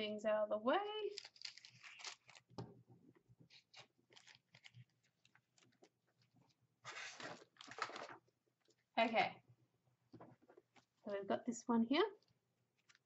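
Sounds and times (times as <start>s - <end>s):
paper cards rustling: 1.1s - 2.7s, 3.5s - 5.9s, 6.8s - 8.2s.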